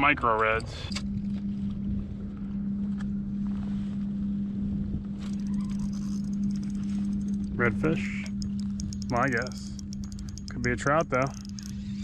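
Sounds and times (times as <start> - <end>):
steady low hum: 0.0 - 12.0
wind rumbling on microphone: 0.6 - 12.0
faint clicks: 8.2 - 12.0.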